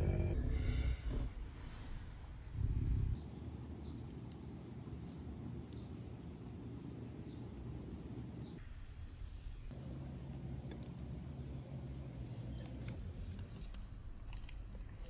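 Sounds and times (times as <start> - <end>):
low rumble: 0.0 - 8.6
outdoor background noise: 0.0 - 15.0.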